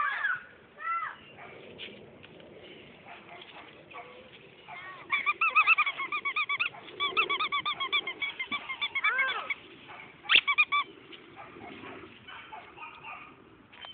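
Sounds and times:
squeaky dog toy squeaking: 10.3 - 10.8.

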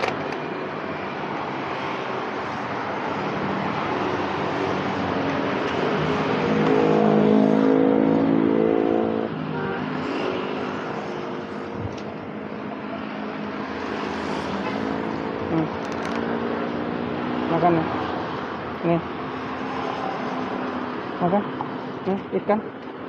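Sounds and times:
road traffic noise: 0.0 - 23.0
vehicle engine passing: 3.5 - 9.4.

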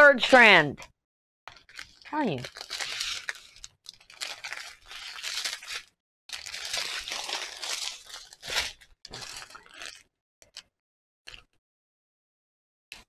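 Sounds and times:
plastic bags crinkling: 1.5 - 10.0.

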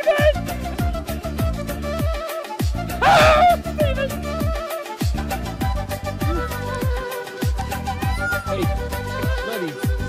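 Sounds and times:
held melody: 2.9 - 9.9.

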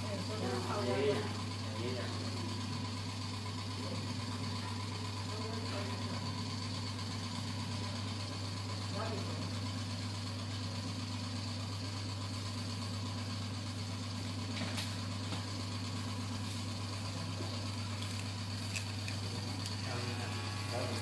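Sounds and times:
electric hair clipper buzzing: 18.0 - 21.0.

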